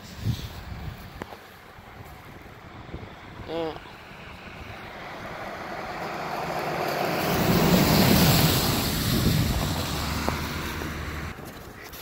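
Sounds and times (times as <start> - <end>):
car passing on wet road: 3.9 - 11.4.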